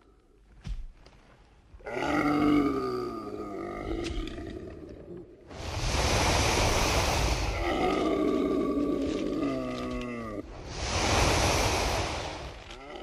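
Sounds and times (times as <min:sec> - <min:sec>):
breathy dragon roar: 0:01.8 - 0:05.1, 0:07.2 - 0:11.0.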